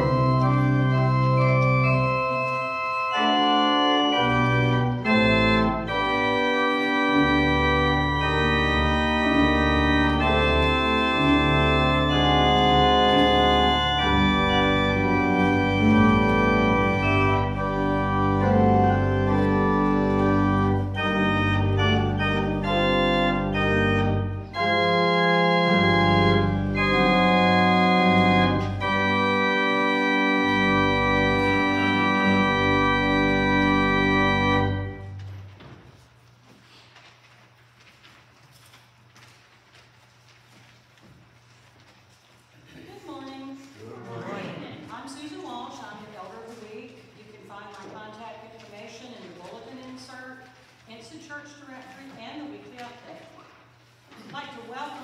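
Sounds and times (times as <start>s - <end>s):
church organ playing chords: 0.0s - 35.6s.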